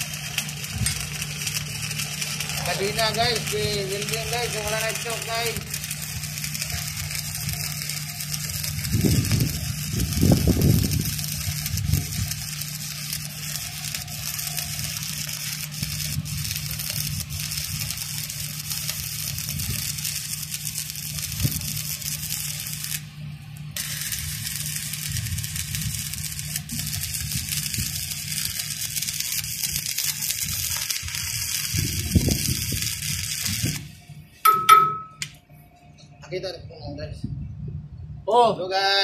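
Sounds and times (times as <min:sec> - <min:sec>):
low rumbling bursts: 0:00.0 - 0:28.7
welding arc crackling and hissing: 0:00.0 - 0:35.4
low hum: 0:00.0 - 0:38.3.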